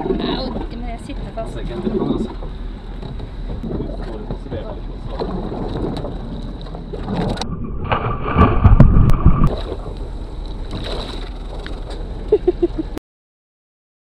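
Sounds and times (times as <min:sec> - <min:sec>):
wind on microphone: 0:00.0 - 0:13.0
water splashing: 0:03.4 - 0:12.6.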